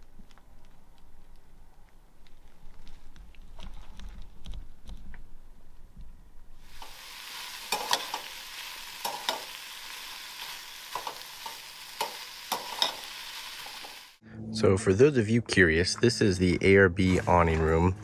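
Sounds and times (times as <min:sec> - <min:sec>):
sausage sizzling in frying pan: 0:06.6 - 0:14.2.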